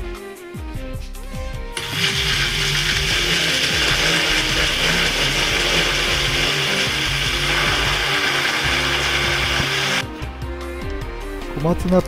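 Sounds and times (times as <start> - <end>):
blender motor whirring: 1.8 - 10.0.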